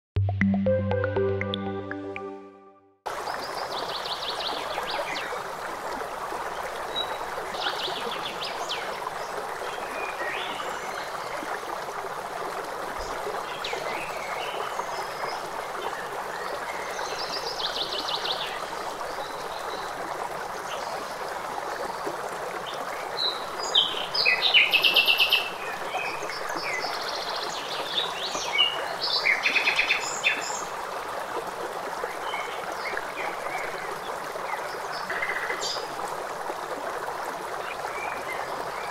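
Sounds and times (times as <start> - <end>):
stream water rushing: 3.1 - 38.9.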